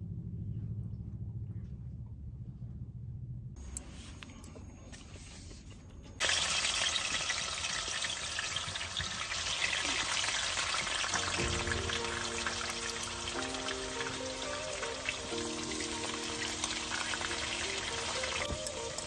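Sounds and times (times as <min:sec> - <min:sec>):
ribs sizzling in hot oil: 0:06.2 - 0:19.0
background music with held notes: 0:11.0 - 0:19.0.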